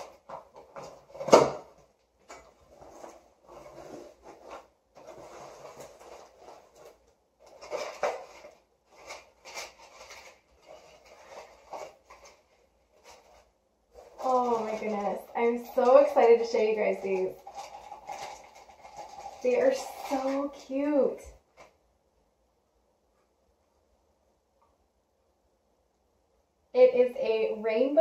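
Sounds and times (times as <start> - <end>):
cardboard flaps rustling: 0.0 - 20.4
tissue paper rustling: 2.6 - 21.6.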